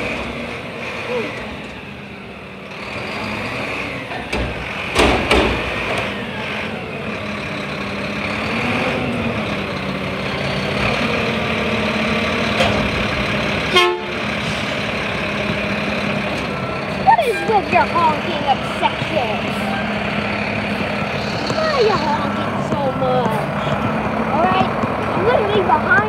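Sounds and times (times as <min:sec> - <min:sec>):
garbage truck diesel engine running: 0:00.0 - 0:26.0
hydraulics working: 0:00.0 - 0:26.0
loud bangs of metal bin: 0:04.4 - 0:05.8
short horn toot: 0:13.7 - 0:14.2.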